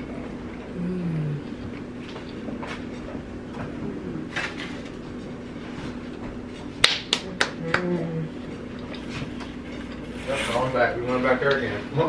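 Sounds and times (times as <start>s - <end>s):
steady low hum: 0.0s - 12.0s
hands clapping: 6.8s - 8.0s.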